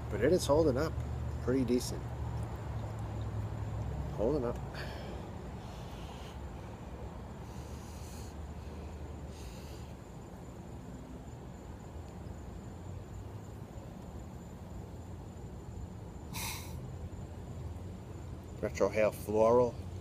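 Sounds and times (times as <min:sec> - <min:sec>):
man exhaling breath: 0:04.7 - 0:06.4, 0:16.3 - 0:16.8.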